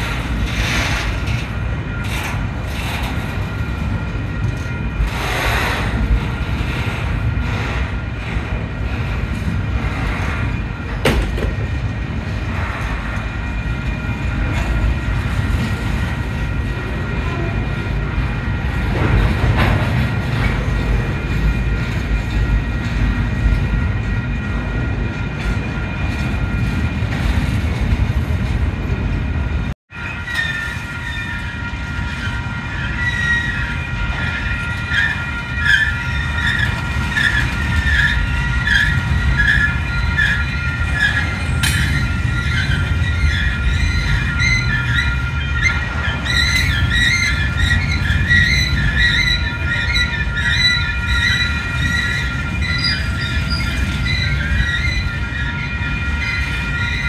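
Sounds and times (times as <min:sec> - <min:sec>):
freight train rumbling past: 0:00.0 - 0:57.0
wavering high squeal: 0:30.0 - 0:57.0.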